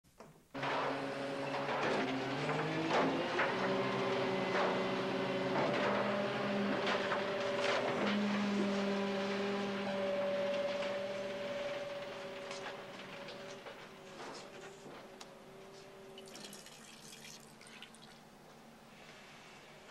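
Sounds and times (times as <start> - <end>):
held string notes: 3.1 - 16.2.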